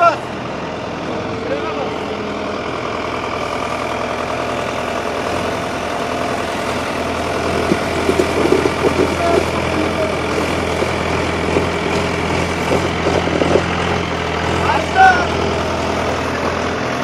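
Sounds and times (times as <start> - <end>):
diesel tractor engines under load: 0.0 - 17.0.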